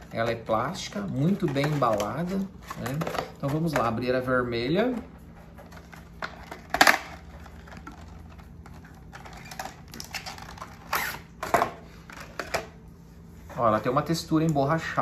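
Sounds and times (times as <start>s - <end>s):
plastic packaging clicks and crinkling: 0.1s - 4.0s, 5.6s - 12.7s.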